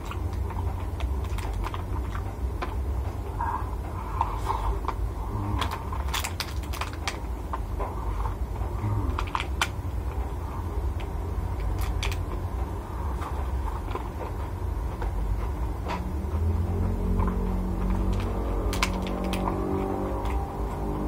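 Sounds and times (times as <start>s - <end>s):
steady low hum: 0.0s - 21.0s
plastic box clicking and crackling: 5.5s - 7.2s, 9.0s - 9.8s, 11.6s - 12.4s, 17.9s - 20.4s.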